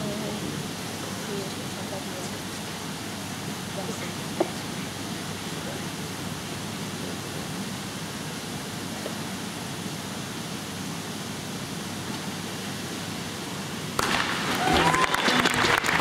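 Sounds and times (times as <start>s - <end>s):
indoor arena hiss: 0.0s - 16.0s
crowd cheering and applause: 14.0s - 16.0s.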